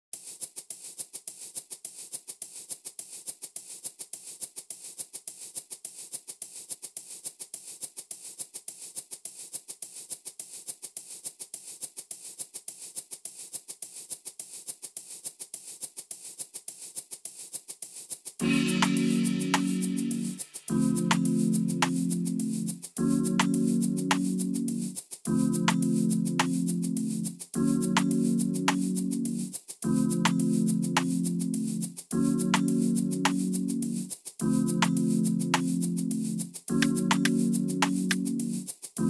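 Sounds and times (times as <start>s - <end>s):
shaker percussion loop: 0.2s - 39.0s.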